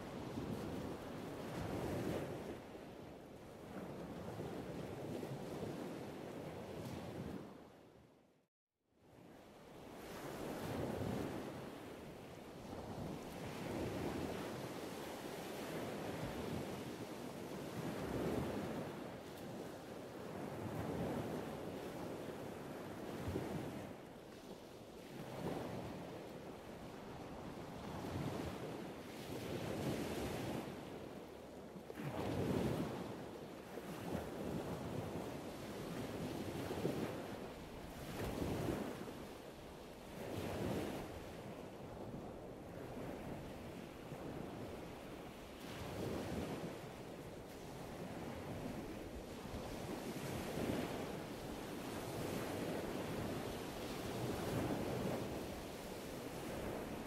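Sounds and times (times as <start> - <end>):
wind on microphone: 0.0 - 8.2, 9.2 - 57.0
surf breaking on a reef: 25.1 - 57.0.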